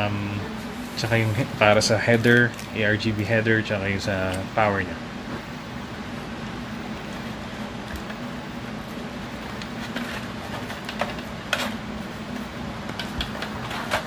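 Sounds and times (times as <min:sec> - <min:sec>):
steady background hum: 0:00.0 - 0:14.0
plastic fan clicks and rustles: 0:07.8 - 0:08.3, 0:09.5 - 0:14.0.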